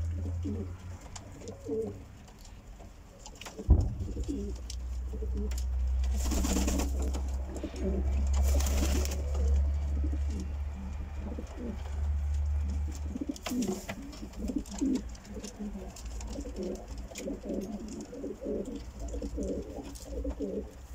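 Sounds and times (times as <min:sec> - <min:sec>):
pigeons cooing: 0:00.0 - 0:02.3, 0:03.4 - 0:20.9
low rumble: 0:03.7 - 0:05.9.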